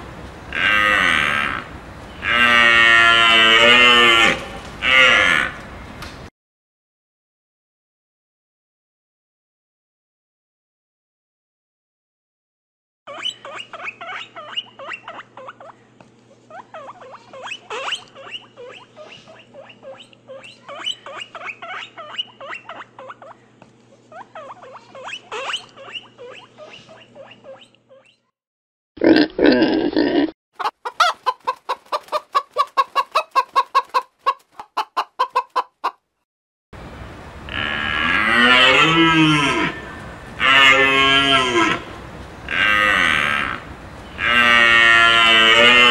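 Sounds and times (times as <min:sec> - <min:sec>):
loud animal call: 0:00.5 - 0:05.7, 0:37.5 - 0:41.9, 0:42.5 - 0:45.9
animal calls: 0:13.1 - 0:28.3, 0:42.5 - 0:45.9
pulsed animal calls: 0:13.1 - 0:28.3.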